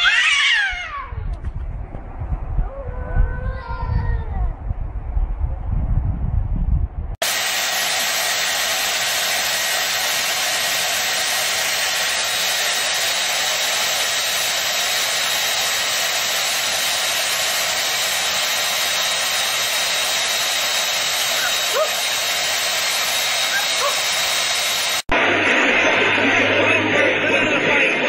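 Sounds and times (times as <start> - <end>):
low rumble: 1.1 - 7.2
hair dryer blowing: 7.2 - 26.6.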